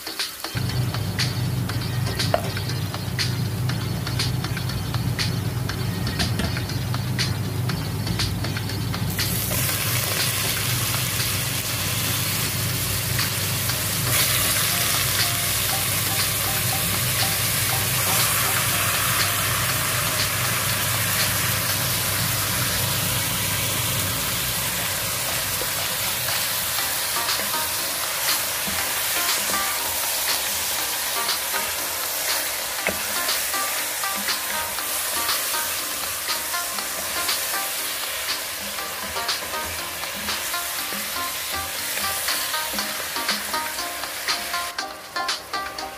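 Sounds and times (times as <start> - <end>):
meat sizzling in hot oil: 9.1 - 44.8.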